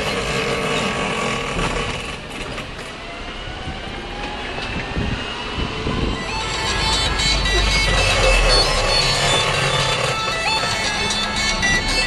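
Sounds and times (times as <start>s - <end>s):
car body and wheels rattling: 6.4s - 12.0s.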